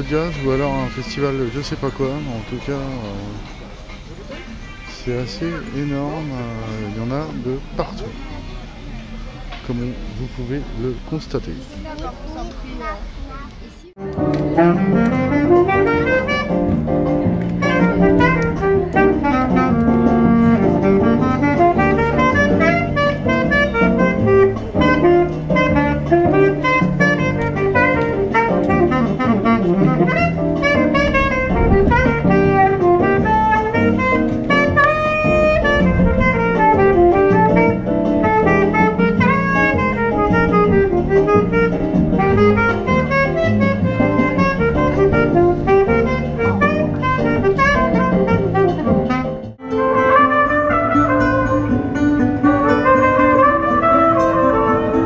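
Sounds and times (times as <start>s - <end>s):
saxophone jazz melody: 4.3s - 8.2s, 13.9s - 55.0s
bass and drums backing track: 13.5s - 55.0s.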